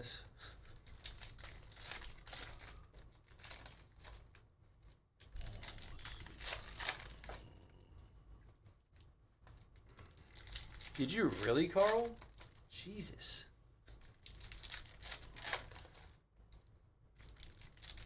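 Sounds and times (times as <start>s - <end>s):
foil wrappers crinkling and tearing: 0.5s - 7.5s, 9.5s - 12.7s, 13.8s - 16.2s, 17.2s - 18.0s.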